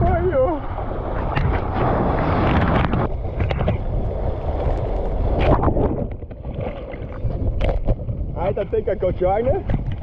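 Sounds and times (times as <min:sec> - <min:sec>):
wave rushing over sand: 0:00.0 - 0:07.5
water buffeting microphone: 0:00.0 - 0:10.0.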